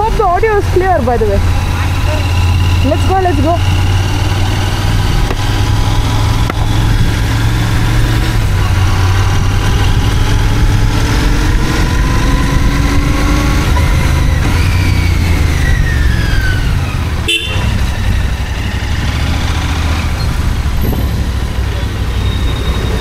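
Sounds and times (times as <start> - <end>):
motorcycle engine riding off: 0.0 - 23.0
vehicle horn: 17.2 - 17.9.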